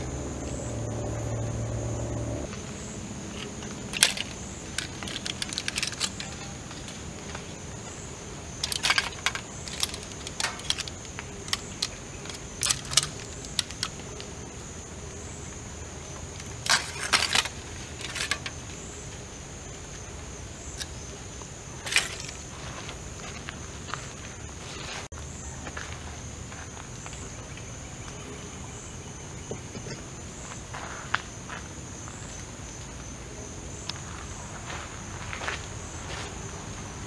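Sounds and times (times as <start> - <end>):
high-pitched drone: 0.0 - 2.5.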